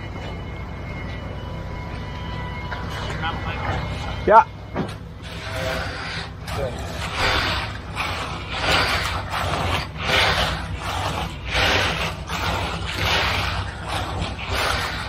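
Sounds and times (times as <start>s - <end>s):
steady low hum: 0.0s - 15.0s
float scraping wet concrete: 5.2s - 15.0s.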